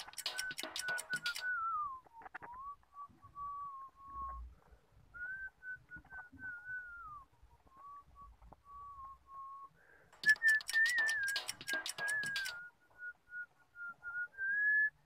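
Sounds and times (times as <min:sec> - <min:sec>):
sharp clicks and clatter: 0:00.0 - 0:01.5, 0:10.2 - 0:12.7
person whistling a tune: 0:00.0 - 0:15.0.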